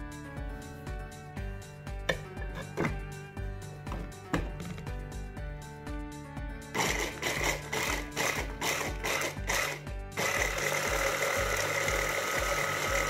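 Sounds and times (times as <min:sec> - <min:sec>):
blender grinding walnuts: 0:06.8 - 0:13.0.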